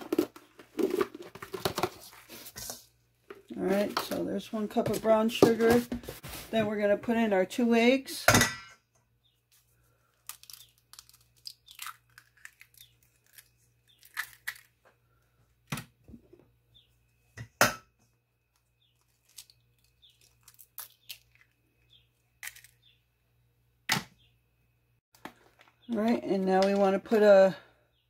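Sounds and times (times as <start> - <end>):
eggshells cracking: 10.2 - 14.8, 18.5 - 22.9.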